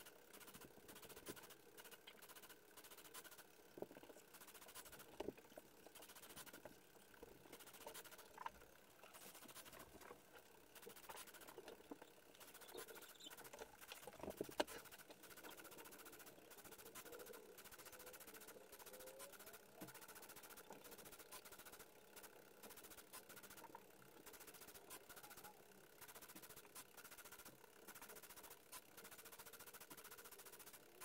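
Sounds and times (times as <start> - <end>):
pen plotter pattering and clicking: 0.0 - 31.0.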